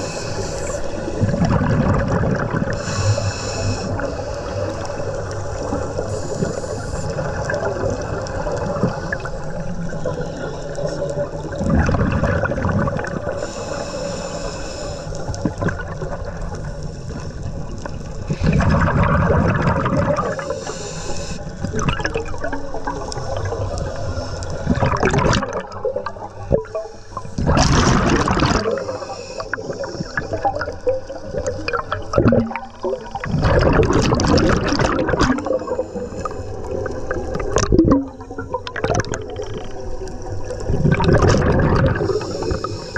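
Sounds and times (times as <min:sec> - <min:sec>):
diver breathing through regulator: 0:00.0 - 0:01.4, 0:02.6 - 0:07.5, 0:13.2 - 0:15.6, 0:20.2 - 0:21.7, 0:26.7 - 0:30.8, 0:33.8 - 0:37.2, 0:41.8 - 0:42.9
bubbles gurgling: 0:00.0 - 0:13.6, 0:15.3 - 0:20.6, 0:21.5 - 0:42.9.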